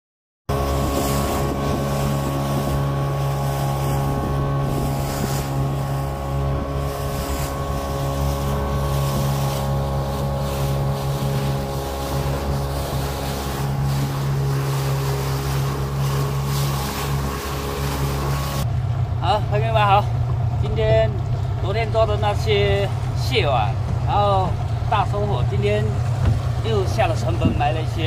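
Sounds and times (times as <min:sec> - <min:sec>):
wind buffeting microphone: 0:00.5 - 0:19.2, 0:20.2 - 0:28.0
boat motor running: 0:00.5 - 0:28.0
water rushing past hull: 0:00.5 - 0:28.0.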